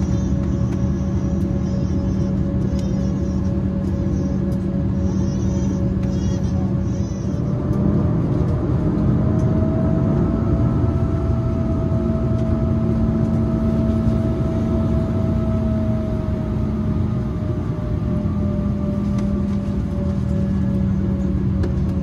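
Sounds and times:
aircraft cabin air systems droning: 0.0s - 22.0s.

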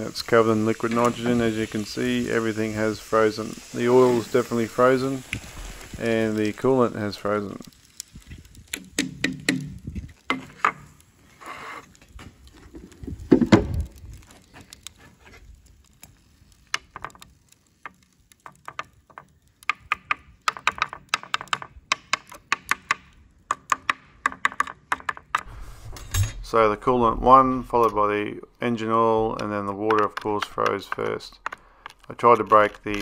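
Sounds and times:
thud: 13.3s - 13.9s.

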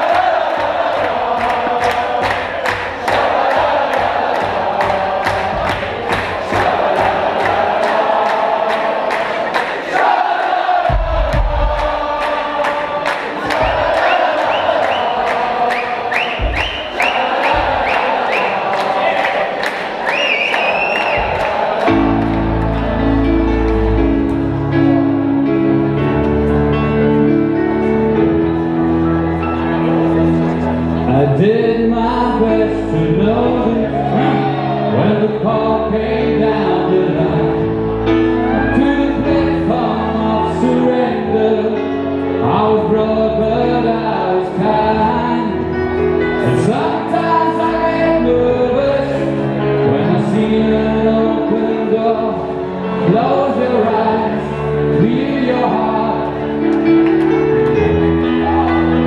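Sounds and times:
keyboard chords: 0.0s - 59.0s
man singing: 31.0s - 57.0s.

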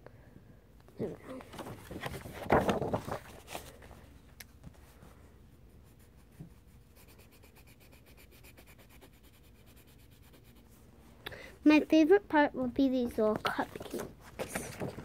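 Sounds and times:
pencil scratching on paper: 5.7s - 10.8s.

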